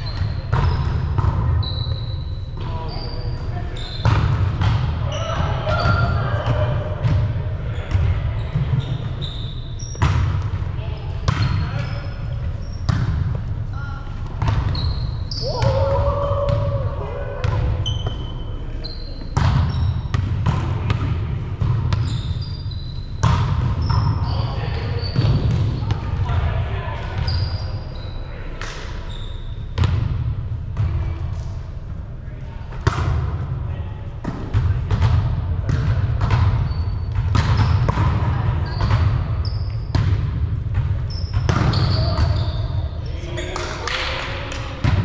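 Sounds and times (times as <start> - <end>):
sneaker squeaks on floor: 0.0 - 6.5, 7.7 - 10.4, 11.0 - 13.2, 14.4 - 15.8, 17.8 - 20.2, 21.8 - 26.0, 27.1 - 29.9, 35.7 - 40.1, 41.0 - 43.8
volleyball hits: 4.0 - 9.1, 9.9 - 11.9, 14.2 - 18.3, 19.2 - 22.4, 23.1 - 24.4, 32.7 - 33.4, 34.2 - 42.8, 43.5 - 45.0.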